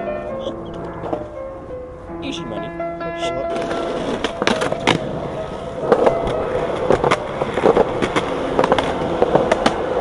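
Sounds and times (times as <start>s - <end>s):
skateboard wheels rolling on concrete: 0.0s - 10.0s
skateboard clacking on ground: 0.4s - 1.4s, 3.5s - 10.0s.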